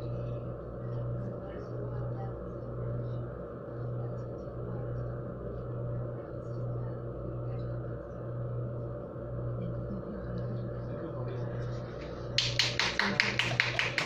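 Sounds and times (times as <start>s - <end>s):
low room hum and rumble: 0.0s - 14.0s.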